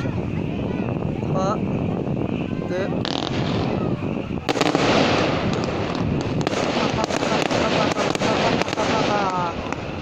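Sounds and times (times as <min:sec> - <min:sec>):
fireworks crackling and popping: 0:00.0 - 0:10.0
firework bang: 0:02.9 - 0:10.0.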